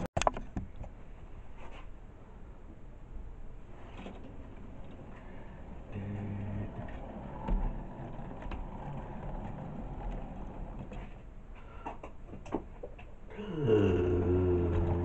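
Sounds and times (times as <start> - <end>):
steady hum: 0.8 - 15.0
model train wheels and motor: 3.9 - 11.3.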